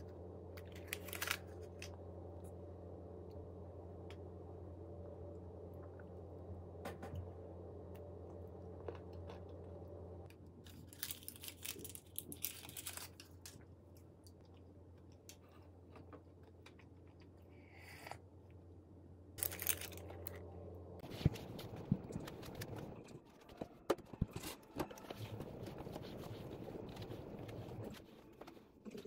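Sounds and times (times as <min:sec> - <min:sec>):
steady low hum: 0:00.0 - 0:10.7, 0:13.6 - 0:23.2, 0:24.8 - 0:29.0
chewing and crunching: 0:08.3 - 0:17.5.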